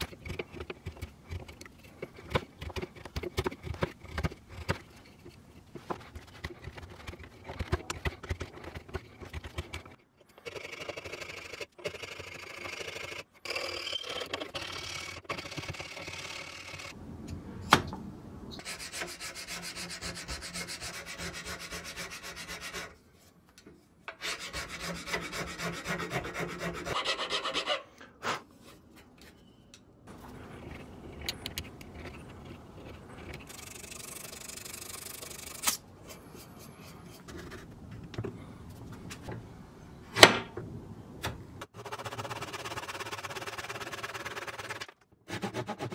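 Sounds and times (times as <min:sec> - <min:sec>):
metal file rasping on wood: 0:18.6 - 0:23.0, 0:24.2 - 0:27.9.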